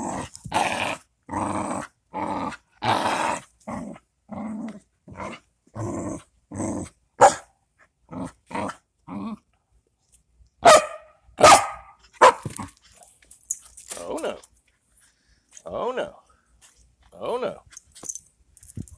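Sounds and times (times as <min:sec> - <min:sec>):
dog growling and barking: 0:00.0 - 0:09.4.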